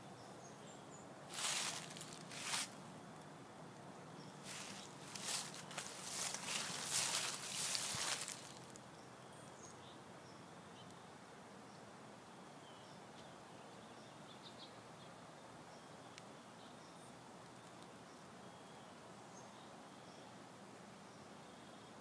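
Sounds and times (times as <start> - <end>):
footsteps crunching dry leaves: 1.3 - 2.8, 4.4 - 8.8.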